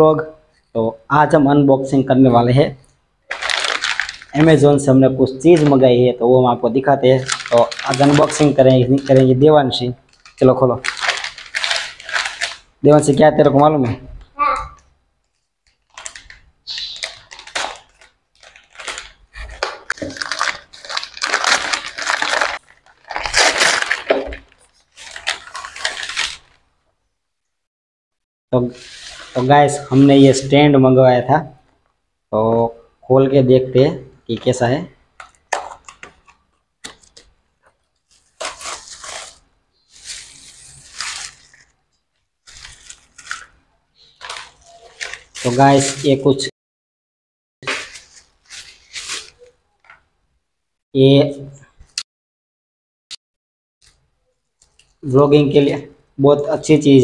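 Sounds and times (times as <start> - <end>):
paper envelope tearing and crinkling: 3.3 - 4.6, 7.2 - 9.3, 10.1 - 12.7, 15.7 - 26.6, 38.0 - 41.7, 42.4 - 43.6, 44.2 - 46.0, 47.6 - 50.0.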